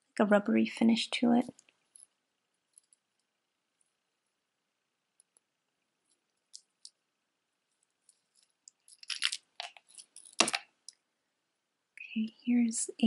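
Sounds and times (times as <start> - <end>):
beads clicking: 1.4 - 3.4, 5.1 - 7.1, 7.7 - 11.0
chain and beads clinking: 1.9 - 3.0, 7.7 - 10.6.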